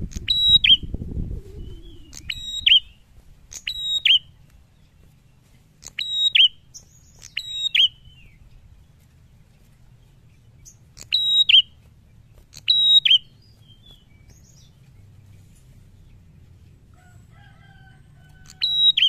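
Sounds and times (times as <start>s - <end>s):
bird calling with sharp high notes: 1.6s - 5.0s, 5.8s - 8.6s, 10.6s - 14.9s, 18.3s - 19.0s.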